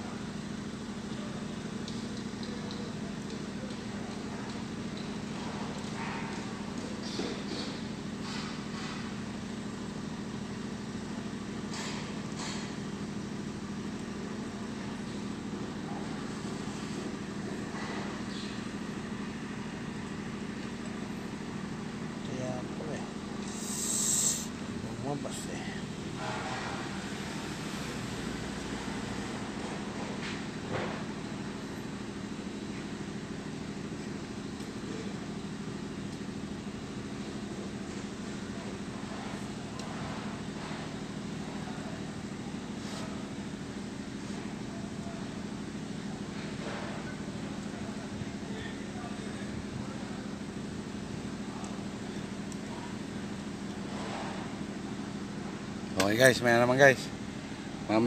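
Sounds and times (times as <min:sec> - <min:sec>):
engine idling: 0:00.0 - 0:58.0.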